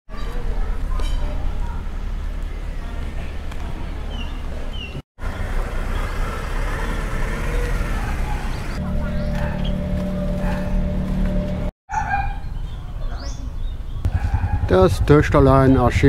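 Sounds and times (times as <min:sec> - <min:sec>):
low street rumble: 0:00.1 - 0:11.7, 0:12.5 - 0:16.0
engine-like hum: 0:01.4 - 0:11.7.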